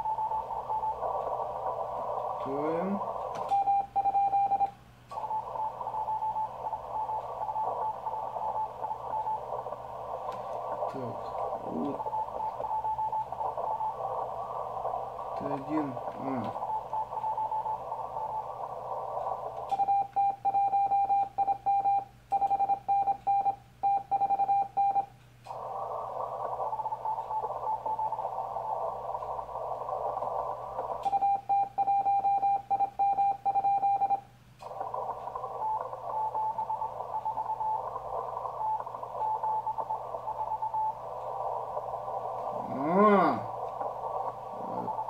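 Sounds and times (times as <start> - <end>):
radio band hiss: 0.0 - 20.9, 25.4 - 33.0, 34.3 - 45.0
faint morse signals: 0.0 - 45.0
morse code sidetone: 3.4 - 9.6, 11.0 - 14.0, 16.4 - 18.6, 19.7 - 25.1, 31.0 - 34.3, 34.9 - 41.1.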